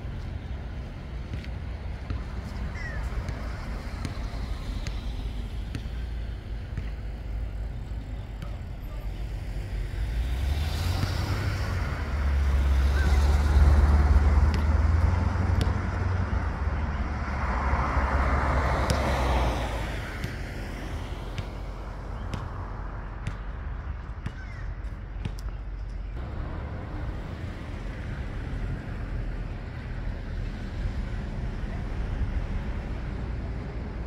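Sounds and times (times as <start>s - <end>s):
vehicle engine rumble: 0.0s - 34.0s.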